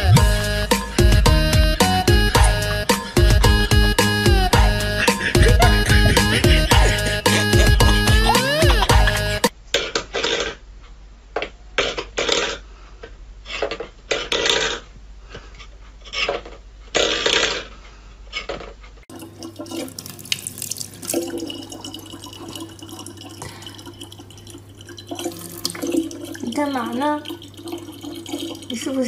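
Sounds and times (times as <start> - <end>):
water trickling into plastic bottle: 19.1 - 29.0.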